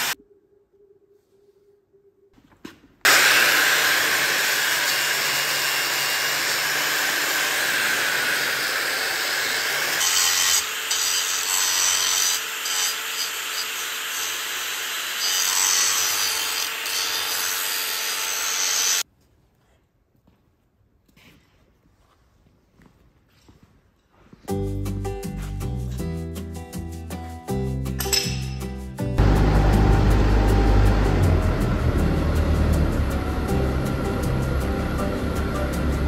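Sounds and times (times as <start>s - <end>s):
angle grinder grinding steel: 3.1s - 19.0s, 29.2s - 36.0s.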